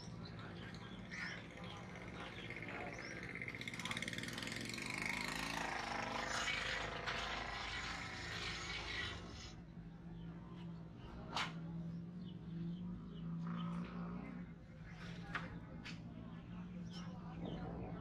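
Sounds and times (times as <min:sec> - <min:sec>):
small engine rattling: 0:00.0 - 0:09.5
market street ambience: 0:00.0 - 0:18.0
steady low hum: 0:00.0 - 0:18.0.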